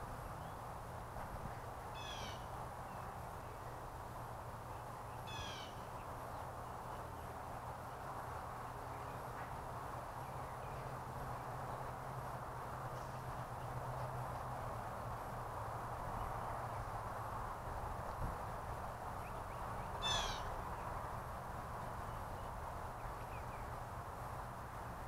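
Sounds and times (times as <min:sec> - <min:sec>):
bird calls: 0:02.0 - 0:03.0, 0:05.2 - 0:06.1, 0:19.2 - 0:20.9.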